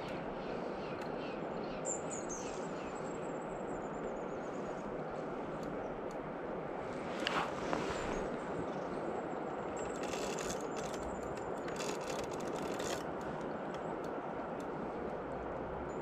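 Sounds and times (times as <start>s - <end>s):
short scraping sounds: 7.0s - 8.3s.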